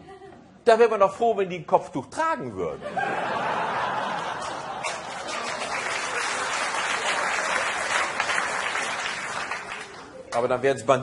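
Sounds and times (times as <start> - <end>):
audience applause: 3.9 - 10.3.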